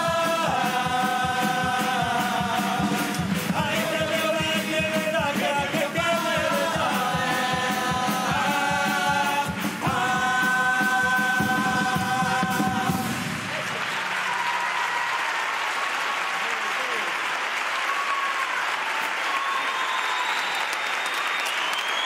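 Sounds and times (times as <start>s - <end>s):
choir singing in harmony: 0.0s - 13.7s
guitars and drums: 0.0s - 13.7s
audience applauding: 11.8s - 22.0s.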